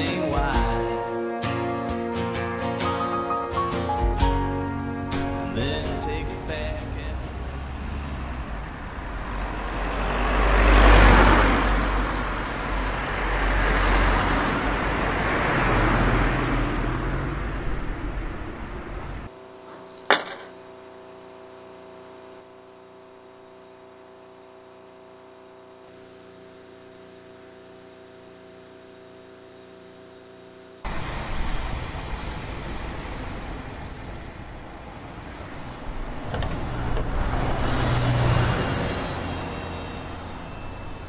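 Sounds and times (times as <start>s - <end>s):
car traffic: 4.7s - 19.4s, 30.8s - 41.0s
hum of held tones: 19.3s - 31.3s, 38.9s - 41.0s.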